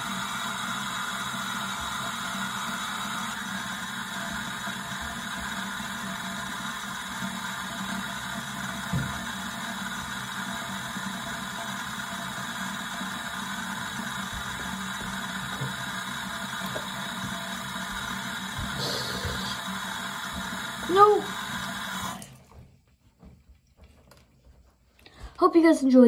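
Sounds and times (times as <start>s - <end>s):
faucet running into sink: 0.0s - 22.6s.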